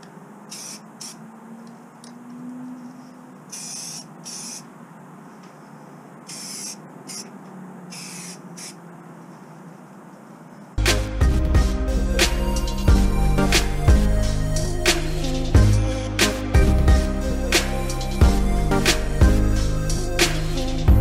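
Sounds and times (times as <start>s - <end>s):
aerosol spray can hissing: 0.5s - 1.2s, 3.5s - 4.6s, 6.3s - 7.3s, 7.9s - 8.8s.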